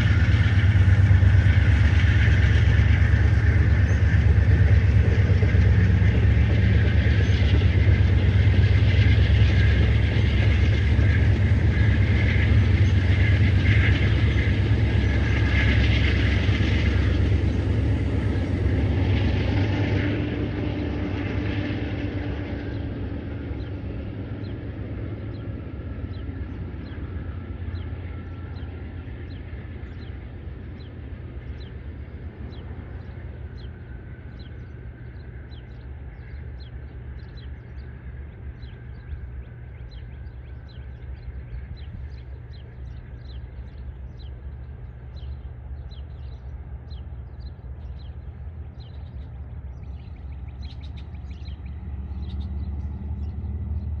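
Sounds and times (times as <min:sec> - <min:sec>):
train low rumble: 0:00.0 - 0:54.0
bird chirping: 0:34.4 - 0:54.0.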